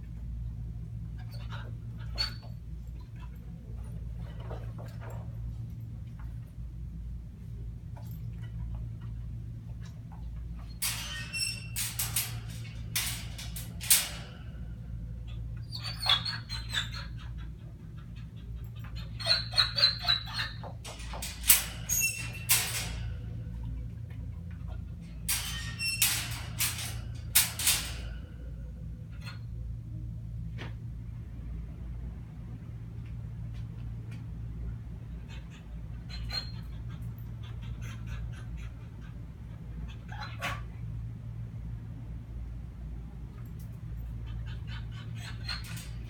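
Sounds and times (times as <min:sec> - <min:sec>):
steady low hum: 0:00.0 - 0:46.0
metal gate clinking and rattling: 0:07.9 - 0:17.2, 0:18.6 - 0:29.5, 0:43.4 - 0:46.0.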